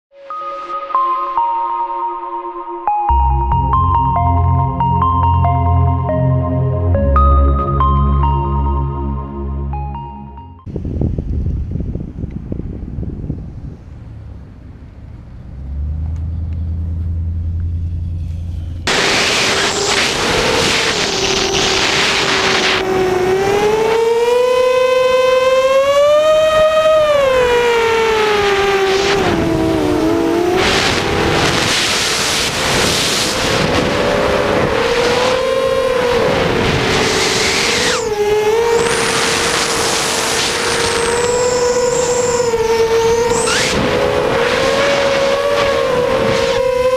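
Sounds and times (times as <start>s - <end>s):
rushing air noise: 18.0s - 22.9s, 30.5s - 46.6s
quadcopter motors whining: 18.4s - 46.9s.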